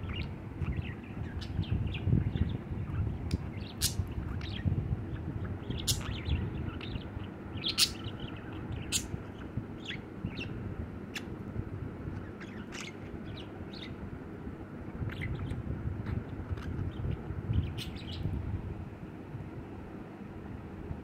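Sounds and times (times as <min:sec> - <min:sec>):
budgerigar chirping: 0:05.4 - 0:11.3, 0:12.3 - 0:14.0, 0:17.6 - 0:18.2.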